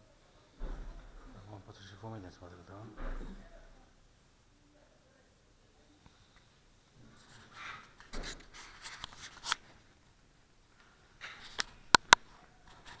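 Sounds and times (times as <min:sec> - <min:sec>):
camera handling rustling: 0:08.0 - 0:09.7.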